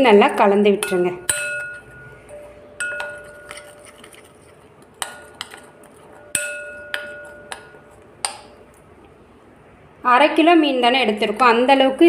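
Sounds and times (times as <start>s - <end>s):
spoon clinking against glass bowl: 0.8s - 4.2s, 5.0s - 8.6s.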